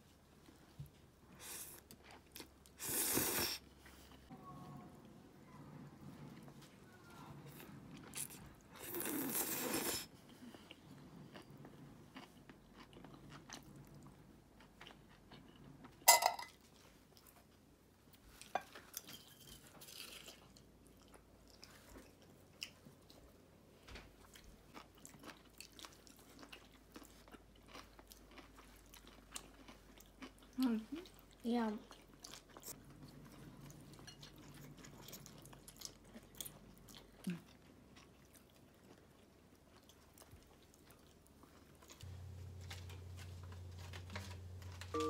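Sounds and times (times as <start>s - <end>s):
crunchy chewing: 7.5s - 16.0s, 24.2s - 44.8s.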